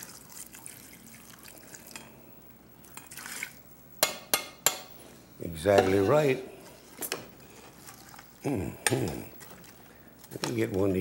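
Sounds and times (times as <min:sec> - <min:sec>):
water trickling into a pot: 0:00.0 - 0:02.2, 0:02.8 - 0:03.7.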